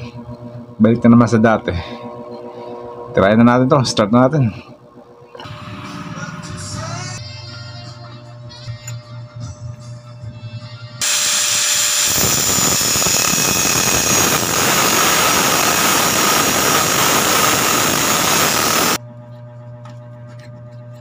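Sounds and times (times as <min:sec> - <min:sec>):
angle grinder grinding metal: 0:11.0 - 0:19.0.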